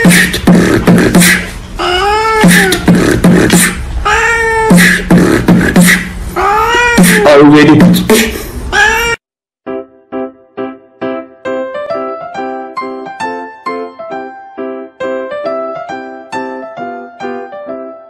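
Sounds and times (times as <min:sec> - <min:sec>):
beatboxing: 0:00.0 - 0:03.9, 0:04.5 - 0:08.4
cat meowing: 0:01.8 - 0:02.8, 0:04.0 - 0:04.9, 0:06.4 - 0:07.4, 0:08.7 - 0:09.2.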